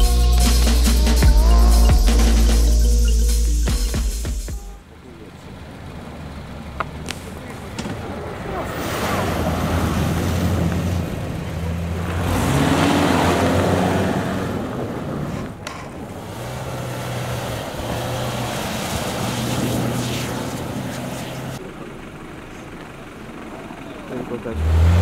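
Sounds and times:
car engine pulling away: 0:00.0 - 0:04.0, 0:04.9 - 0:25.0
car engine accelerating: 0:00.0 - 0:25.0
tyres hissing on snow: 0:17.3 - 0:21.6.

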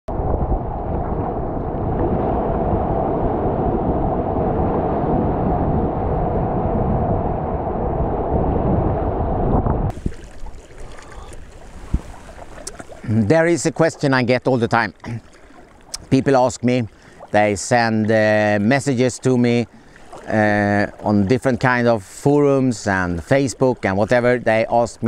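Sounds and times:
waves washing around kayak: 0:00.1 - 0:07.3, 0:09.9 - 0:25.0
wind buffeting microphone: 0:00.1 - 0:14.2.

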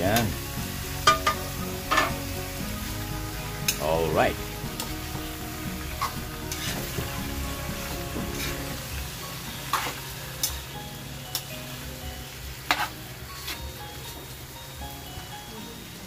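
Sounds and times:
meat sizzling in a wok: 0:00.0 - 0:16.0
metal spatula scraping a pan: 0:01.0 - 0:02.3, 0:05.8 - 0:10.2, 0:12.6 - 0:14.2.

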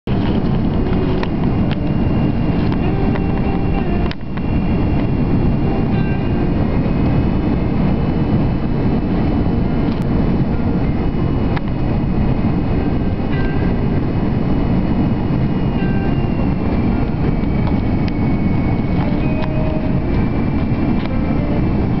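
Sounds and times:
airflow rush: 0:00.1 - 0:22.0
engine drone: 0:00.1 - 0:22.0.

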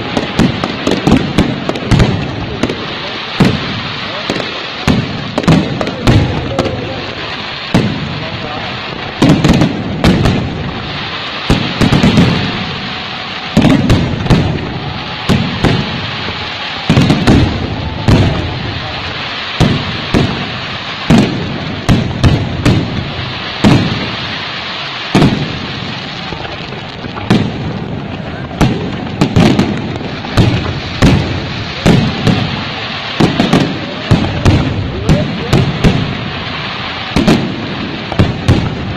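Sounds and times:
fireworks bursting: 0:00.0 - 0:38.9.

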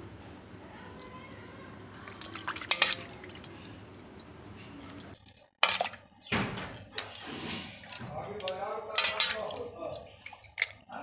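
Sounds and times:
water splashing and dripping: 0:00.8 - 0:10.9.

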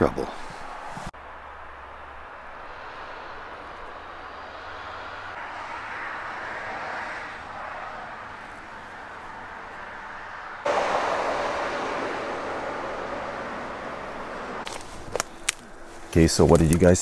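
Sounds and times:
motor traffic noise: 0:00.0 - 0:17.0
vehicle passing: 0:00.2 - 0:16.4.

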